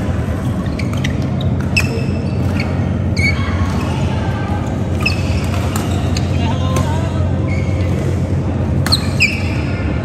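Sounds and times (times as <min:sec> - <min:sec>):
low hall rumble: 0:00.0 - 0:10.0
shoes squeaking on court: 0:00.4 - 0:04.0, 0:04.9 - 0:08.2, 0:08.8 - 0:09.7.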